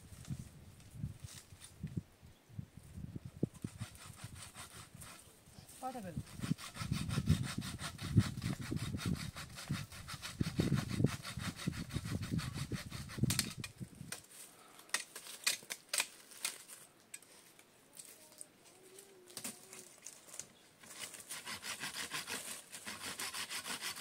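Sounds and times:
saw cutting branch: 3.6s - 5.3s, 5.9s - 14.3s, 20.8s - 24.0s
branches snapping and rustling: 13.3s - 16.9s, 18.0s - 21.3s.

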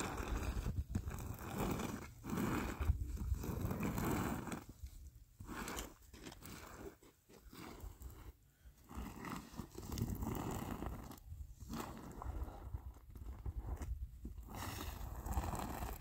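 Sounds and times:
brush scraping on concrete: 0.0s - 12.7s.

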